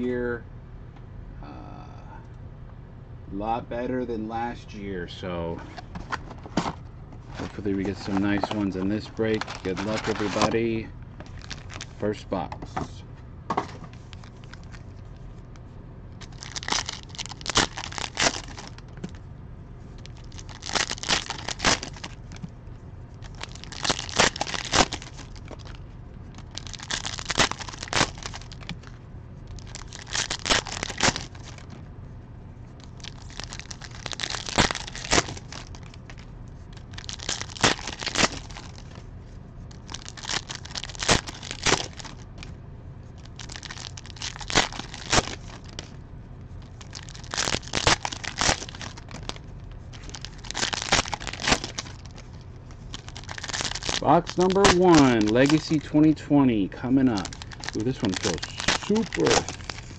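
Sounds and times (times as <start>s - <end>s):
steady low hum: 0.0s - 59.9s
foil wrappers crinkling: 6.1s - 12.1s, 13.9s - 15.2s, 16.2s - 19.2s, 20.0s - 22.4s, 23.2s - 31.8s, 32.8s - 42.5s, 43.1s - 46.0s, 46.6s - 55.8s, 56.8s - 59.9s.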